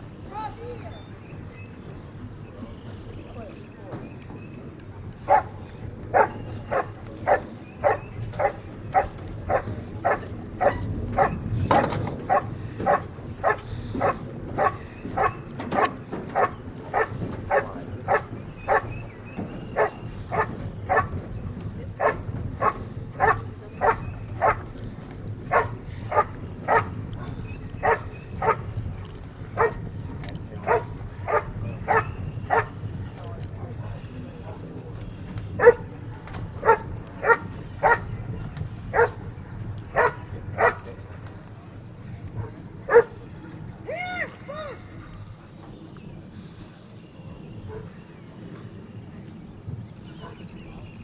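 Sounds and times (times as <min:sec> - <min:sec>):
dog barking steadily: 0:05.2 - 0:19.0, 0:19.7 - 0:21.3, 0:22.0 - 0:24.8, 0:25.4 - 0:28.8, 0:29.5 - 0:29.9, 0:30.6 - 0:32.9, 0:35.5 - 0:38.2, 0:38.9 - 0:41.0, 0:42.3 - 0:43.2, 0:47.6 - 0:48.0, 0:50.2 - 0:50.6.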